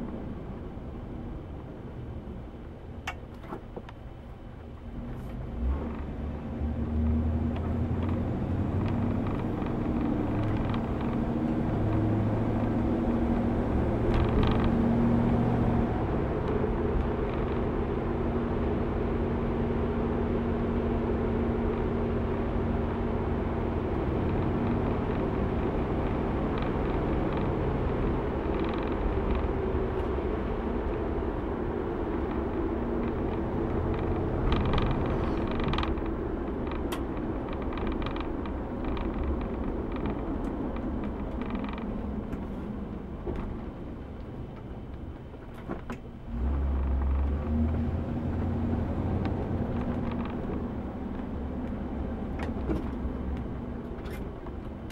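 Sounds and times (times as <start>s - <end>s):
car engine and tyres running: 0.0s - 54.9s
interior creaks and clicks: 7.0s - 15.0s, 23.8s - 54.9s.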